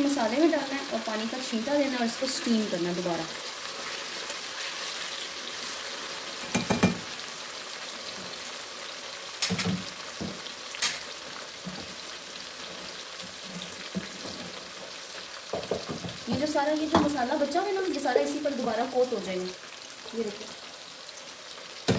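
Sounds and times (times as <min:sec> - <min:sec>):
meat sizzling in hot oil: 0:00.0 - 0:21.9
utensils knocking against pans: 0:06.5 - 0:07.1, 0:15.6 - 0:17.2.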